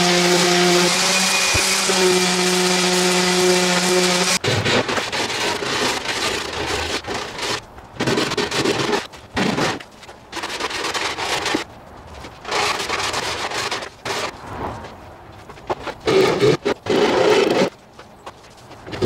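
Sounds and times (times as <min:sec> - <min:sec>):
hand sanding wood edge: 0:00.0 - 0:09.1.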